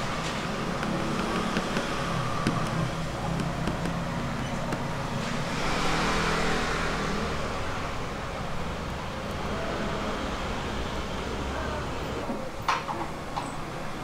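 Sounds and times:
vehicle passing: 0:00.0 - 0:08.8
traffic engine hum: 0:00.0 - 0:14.0.

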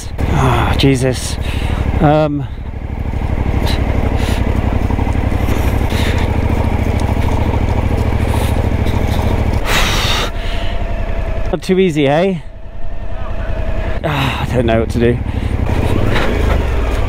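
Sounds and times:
motorcycle engine at low speed: 0:00.0 - 0:17.0
tyres scraping through gravel: 0:02.8 - 0:11.3, 0:14.5 - 0:17.0.

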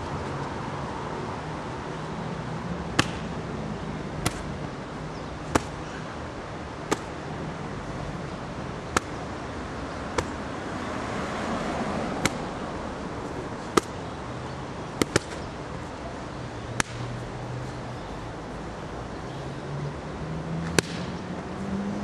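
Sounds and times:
punches slapping focus mitt: 0:03.0 - 0:03.4, 0:04.2 - 0:04.6, 0:05.4 - 0:05.8, 0:06.9 - 0:07.2, 0:08.9 - 0:09.3, 0:10.1 - 0:10.4, 0:12.2 - 0:12.6, 0:13.6 - 0:14.0, 0:15.0 - 0:15.5, 0:16.8 - 0:17.0, 0:20.6 - 0:21.1.

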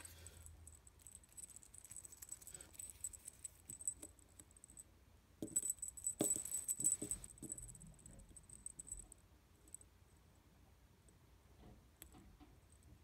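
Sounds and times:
small jingle bells tinkling: 0:00.0 - 0:09.9.

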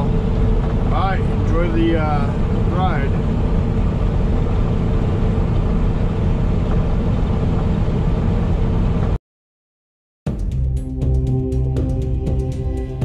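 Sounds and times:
truck engine and road noise: 0:00.0 - 0:09.2.

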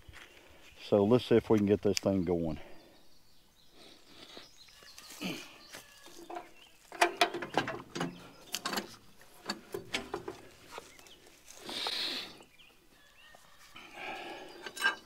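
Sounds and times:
tools and metal hardware clinking: 0:06.2 - 0:10.5, 0:14.6 - 0:15.0.

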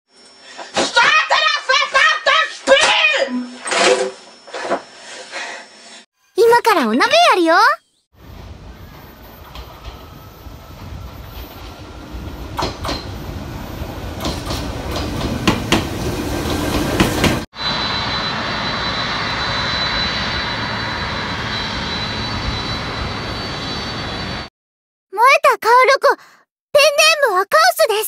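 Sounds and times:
electric train passing: 0:08.2 - 0:24.5
jet airliner engines whining: 0:08.2 - 0:24.5
wheels clacking over rail joints: 0:14.2 - 0:17.4.

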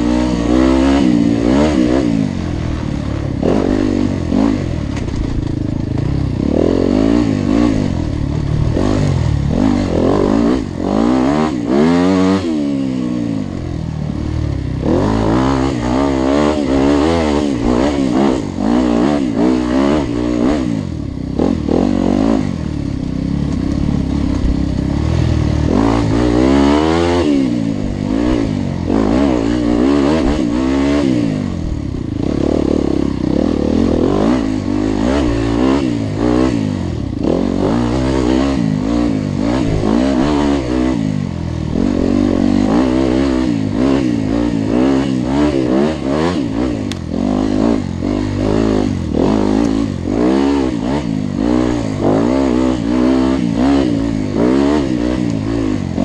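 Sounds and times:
engines revving: 0:00.0 - 0:56.0.

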